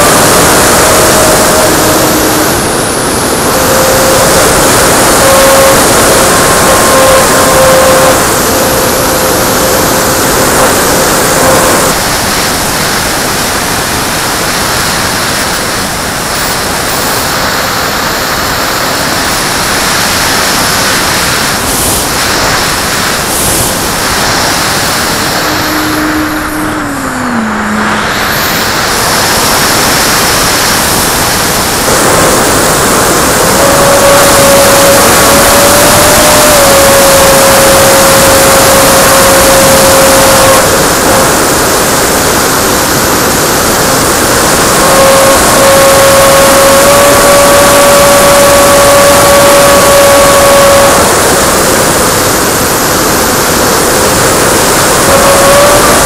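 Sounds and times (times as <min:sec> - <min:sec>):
electric motor and propeller whine: 0:00.0 - 0:56.0
heavy wind on microphone: 0:00.0 - 0:56.0
low tone gliding downward: 0:24.1 - 0:28.9.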